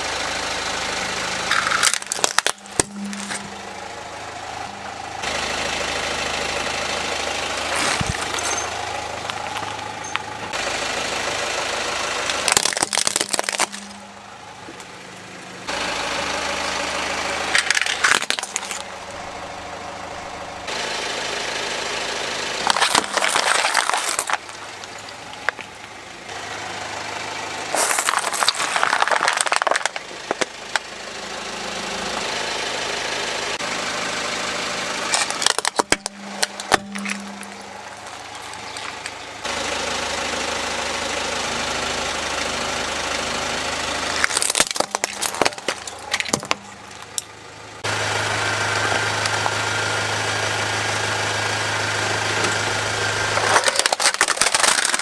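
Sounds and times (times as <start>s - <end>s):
car idling: 0.0s - 55.0s
objects crunching under tyre: 1.4s - 3.8s, 7.5s - 10.6s, 12.2s - 14.9s, 17.4s - 19.5s, 22.6s - 26.3s, 27.7s - 30.9s, 35.0s - 39.5s, 44.1s - 47.4s, 52.3s - 55.0s.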